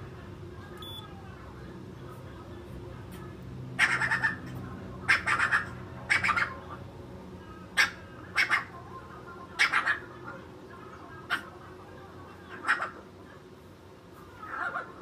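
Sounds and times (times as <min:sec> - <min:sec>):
faint low hum: 0:00.0 - 0:15.0
animal high-pitched calls: 0:03.8 - 0:04.5.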